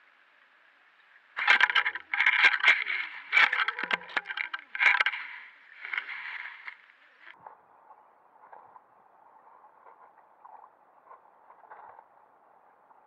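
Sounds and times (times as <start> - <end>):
camera rig scraping on sand: 1.4 - 7.4.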